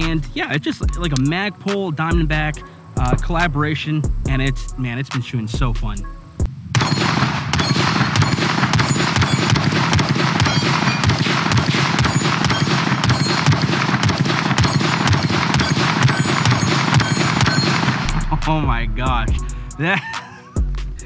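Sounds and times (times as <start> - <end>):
rifle firing rapid shots: 6.8 - 18.3.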